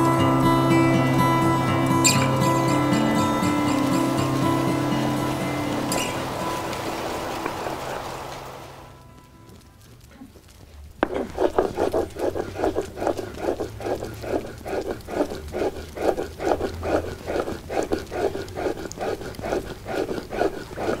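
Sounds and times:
stone scraping on stone: 11.0s - 21.0s.

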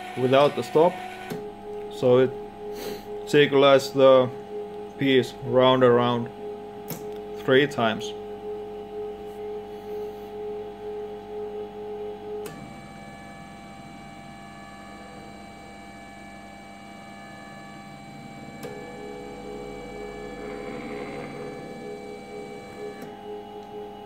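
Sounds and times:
stepper motors whining: 0.0s - 4.3s, 17.2s - 24.0s.

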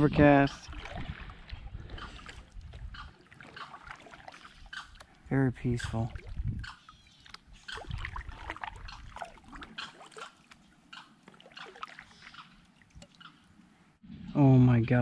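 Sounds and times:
water dripping: 0.5s - 13.7s
paddle dipping into water: 0.6s - 5.2s, 6.0s - 13.4s.

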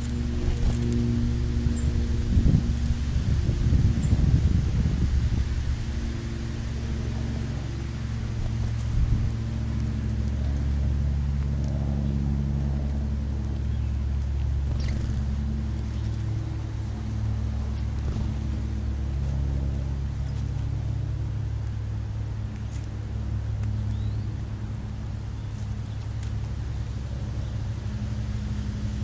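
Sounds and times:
vehicle engine droning hum: 0.0s - 29.0s
faint high chirps and ticks: 22.5s - 26.5s.

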